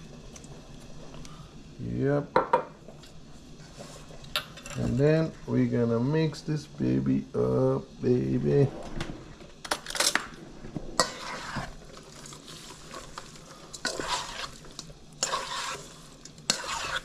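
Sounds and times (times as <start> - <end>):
wet stirring of meat in bowl: 11.1 - 17.0.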